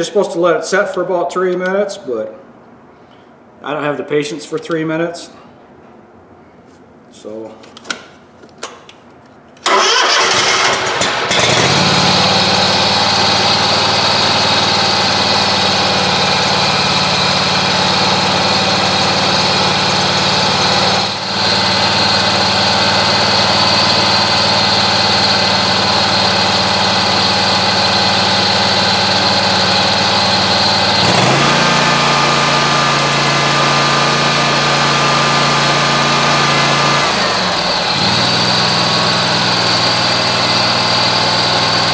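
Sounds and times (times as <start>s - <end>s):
mower engine cranking: 9.6s - 41.9s
mower engine running: 9.6s - 41.9s.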